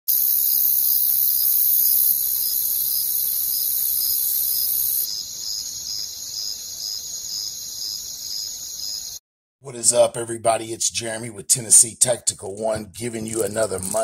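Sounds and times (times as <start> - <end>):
field insects trilling: 0.1 - 9.2
pulsing insect chirp: 0.1 - 9.2.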